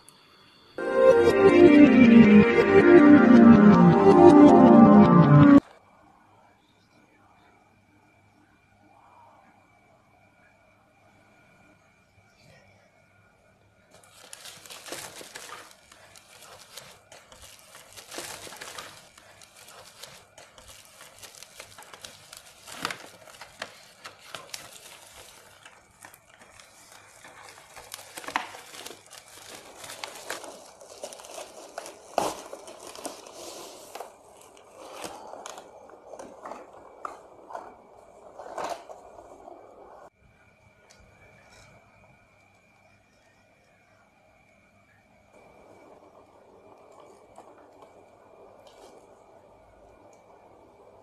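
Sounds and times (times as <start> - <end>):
plastic bag crinkling: 14.0 - 39.2.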